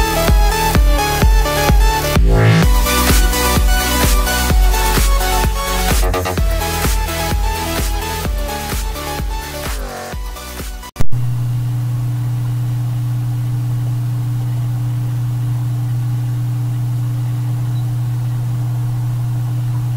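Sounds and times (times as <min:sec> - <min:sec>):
low electrical hum: 0:11.1 - 0:19.9.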